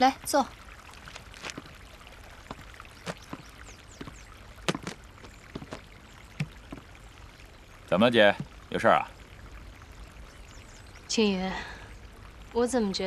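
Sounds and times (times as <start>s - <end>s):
fountain water splashing: 0.0s - 13.0s
sharp taps and knocks: 2.5s - 5.8s, 6.4s - 6.9s.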